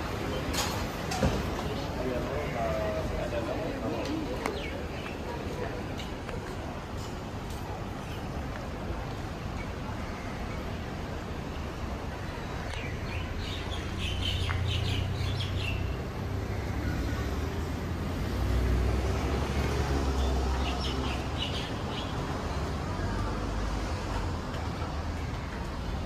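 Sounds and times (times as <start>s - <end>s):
traffic rumble: 0.0s - 26.0s
birds chirping: 12.2s - 17.3s
vehicle passing: 16.0s - 21.9s.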